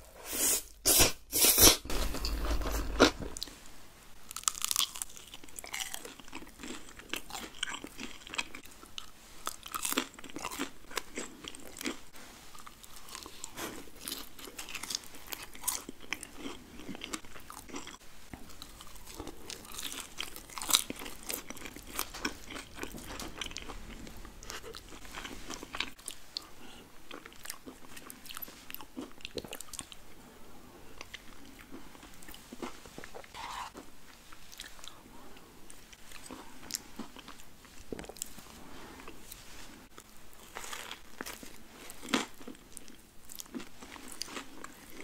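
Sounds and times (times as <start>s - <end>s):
crunchy bites and chewing: 4.3s - 26.5s.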